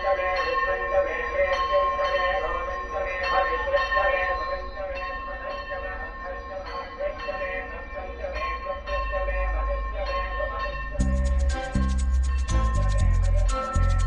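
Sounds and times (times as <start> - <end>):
bells ringing: 0.0 - 14.0
music with a beat: 11.0 - 14.0
wavering drone: 11.0 - 14.0.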